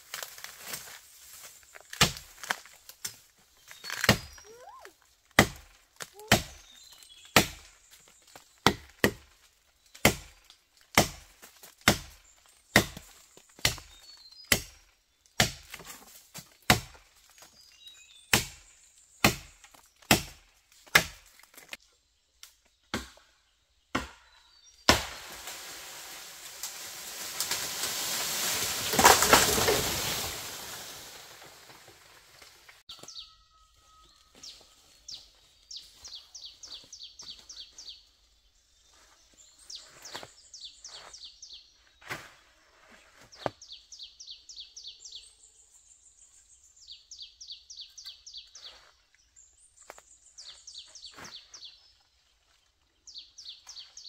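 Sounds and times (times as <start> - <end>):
blade chopping wood: 3.8 - 4.4, 5.4 - 6.7, 10.0 - 14.8, 15.4 - 16.1, 16.7 - 17.1, 18.3 - 21.7, 22.9 - 23.3, 23.9 - 24.3, 24.9 - 25.3, 27.4 - 30.3.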